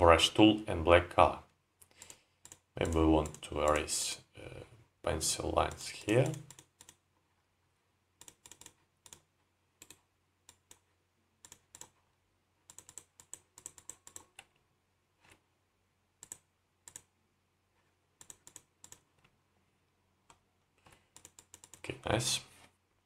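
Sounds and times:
keyboard and mouse clicks: 1.8s - 3.9s, 5.6s - 7.0s, 8.2s - 14.6s, 16.2s - 17.1s, 18.2s - 19.4s, 20.2s - 21.9s.

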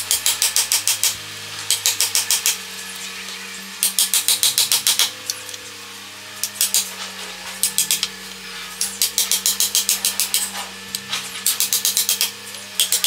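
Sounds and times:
steady mechanical hum: 0.0s - 13.0s
hammer tapping chisel: 8.9s - 13.0s.

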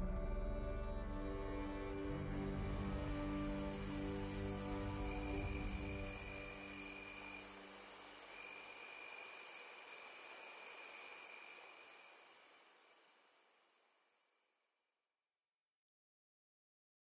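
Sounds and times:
fainter lower trill: 1.1s - 13.6s
crickets trilling: 1.1s - 14.7s.

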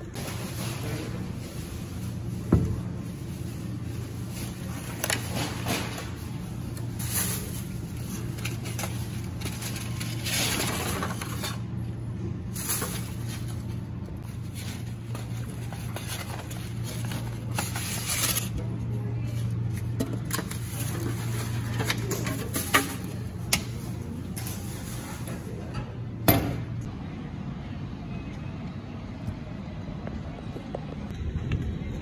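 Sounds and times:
supermarket background hum: 0.0s - 32.0s
plastic bag rustle: 0.1s - 11.8s, 12.4s - 25.6s.

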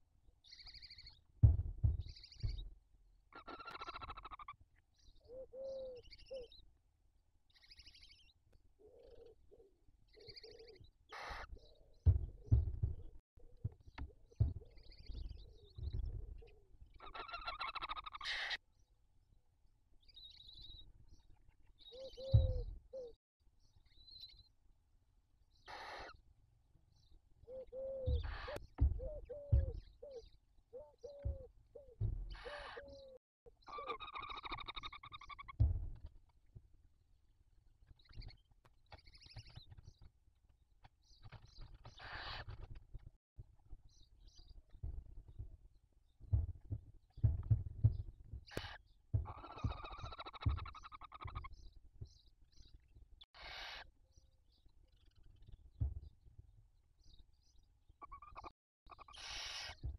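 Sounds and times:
loud thumps in nest box: 1.4s - 2.7s, 12.1s - 13.0s, 28.1s - 30.0s, 31.2s - 32.6s
low thumps: 1.4s - 2.7s, 12.0s - 16.3s, 22.2s - 22.8s, 28.0s - 30.1s, 31.1s - 32.5s, 35.6s - 36.0s, 46.3s - 48.4s
owl chicks raspy begging calls: 3.4s - 4.5s, 5.2s - 6.6s, 8.8s - 11.6s, 17.0s - 18.6s, 25.7s - 26.2s, 27.5s - 35.5s, 53.4s - 53.9s, 58.0s - 59.8s.

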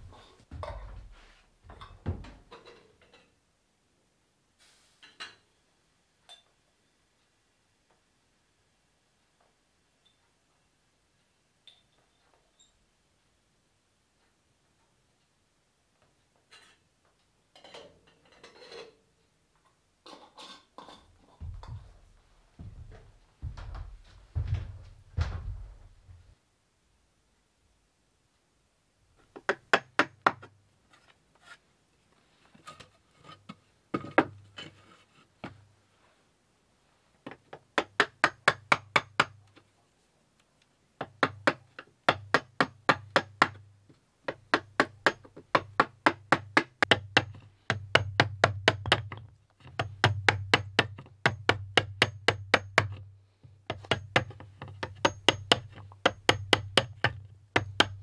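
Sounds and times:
hammer tapping wood chisel: 29.3s - 30.5s, 37.3s - 39.4s, 41.0s - 43.6s, 44.3s - 53.0s, 53.7s - 58.0s.

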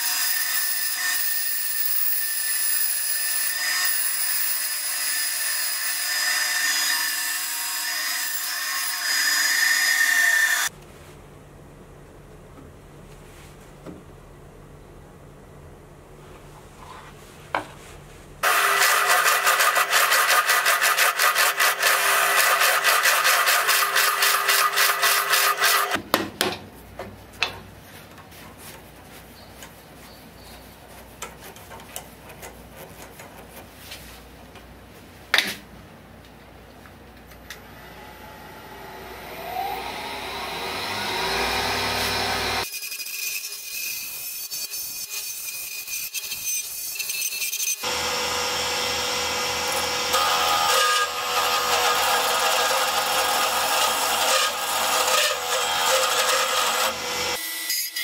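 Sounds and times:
gouge cutting spinning wood: 18.4s - 26.0s, 39.3s - 42.6s
wood lathe spinning up: 18.4s - 26.0s, 38.0s - 42.6s.

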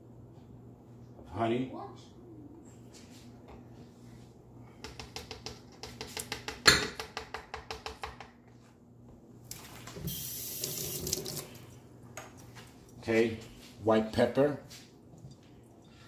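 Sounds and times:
clicks and taps on plastic cup: 4.8s - 8.3s.

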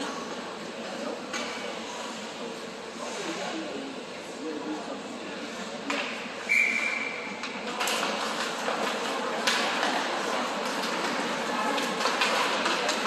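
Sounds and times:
ice rink hum: 0.0s - 13.0s
referee's whistle: 6.4s - 7.2s.

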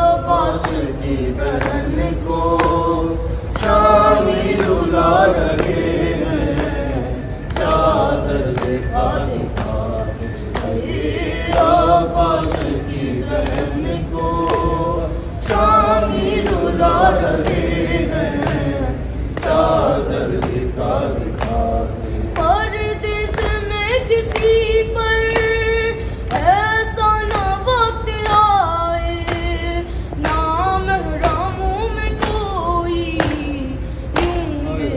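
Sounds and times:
voices joining in chant: 0.0s - 24.4s, 32.7s - 34.9s
mourning lament chanted: 0.0s - 34.9s.

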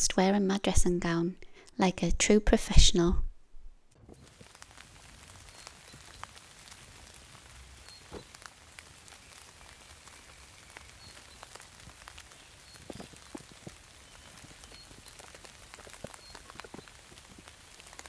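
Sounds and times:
faint patter of small ticks: 4.2s - 18.0s.

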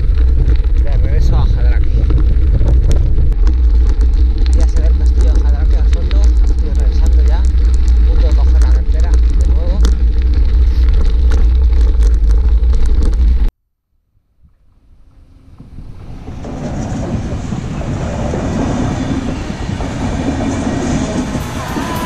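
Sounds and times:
wind buffeting microphone: 0.0s - 13.5s, 14.4s - 22.0s
train wheels rumbling on rails: 14.6s - 22.0s.

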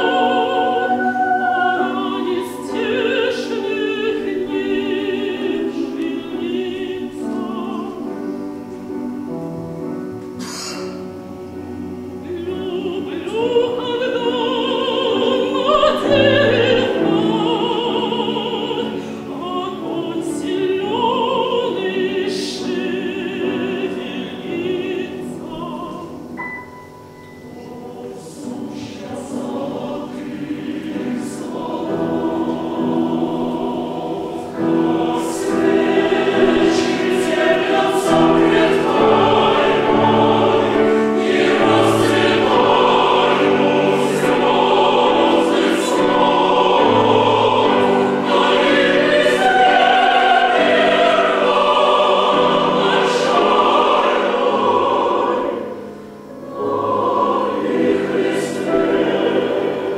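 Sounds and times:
woman singing with vibrato: 0.0s - 8.2s, 12.2s - 26.4s
mixed choir singing: 0.0s - 59.9s.

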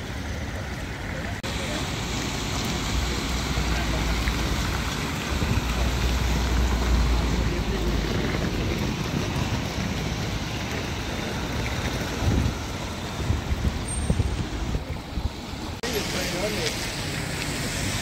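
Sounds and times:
outdoor city noise: 0.0s - 18.0s
wind rumbling on microphone: 4.2s - 15.8s.

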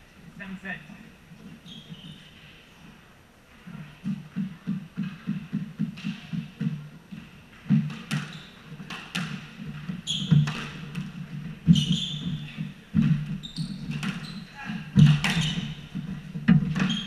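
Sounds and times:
shoes squeaking on wooden floor: 1.3s - 17.0s
ball bouncing on floor: 3.7s - 17.0s
ball hitting walls: 4.0s - 17.0s
racket striking ball: 7.7s - 17.0s.

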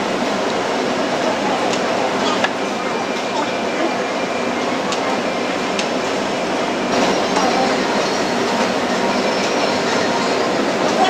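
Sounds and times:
restaurant crowd hubbub: 0.0s - 11.0s.

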